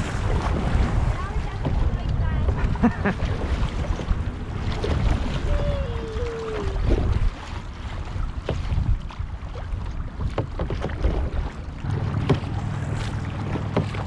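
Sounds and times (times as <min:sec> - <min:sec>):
paddles splashing in water: 0:00.0 - 0:14.0
water dripping and lapping: 0:00.0 - 0:14.0
wind rumble on microphone: 0:00.0 - 0:14.0.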